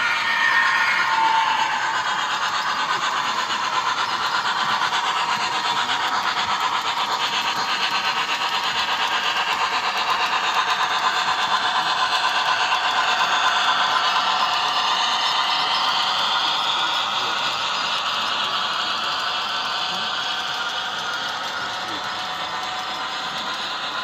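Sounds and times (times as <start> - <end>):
model train running: 0.0 - 24.0.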